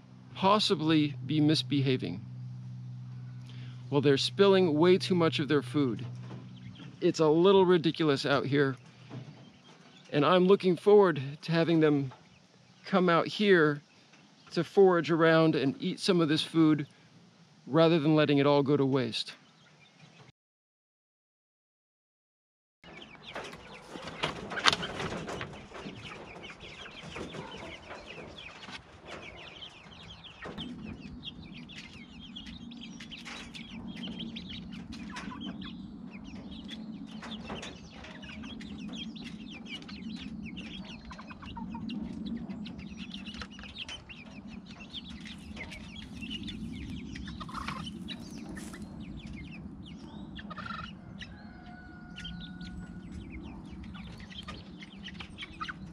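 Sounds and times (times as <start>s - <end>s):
chickens clucking: 0.2s - 16.9s, 22.9s - 55.9s
wooden knocks and clatter: 23.2s - 29.4s.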